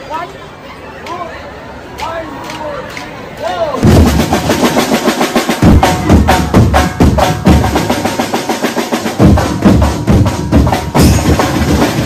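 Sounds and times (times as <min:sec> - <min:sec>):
heavy bass drum strokes: 0:03.8 - 0:12.0.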